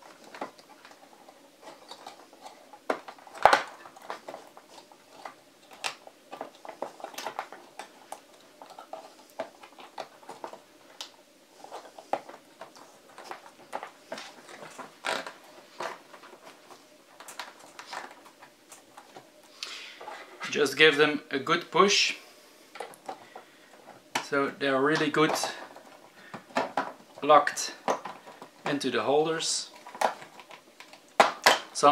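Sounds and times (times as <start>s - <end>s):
plastic clicks and clacks: 24.1s - 27.0s, 27.8s - 28.8s, 29.7s - 31.8s.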